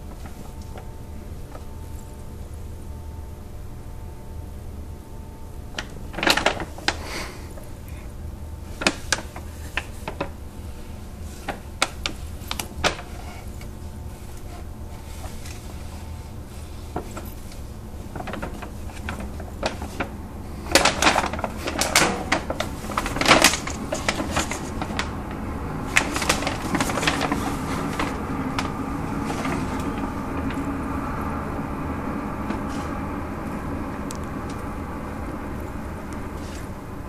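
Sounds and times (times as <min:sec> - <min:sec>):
steady low hum: 0:00.0 - 0:37.0
paper bag crinkling: 0:05.8 - 0:07.6, 0:08.6 - 0:31.2.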